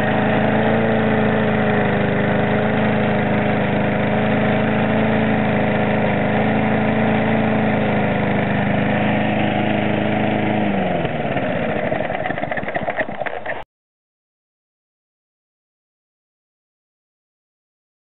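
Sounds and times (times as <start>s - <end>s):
lawn mower engine running: 0.0s - 13.6s.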